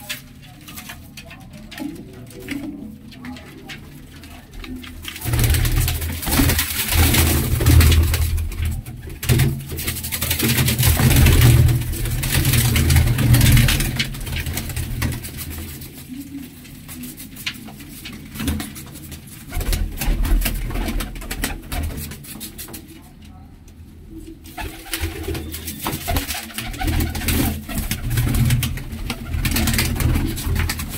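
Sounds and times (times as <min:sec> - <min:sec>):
pigeons cooing: 0:24.2 - 0:30.9.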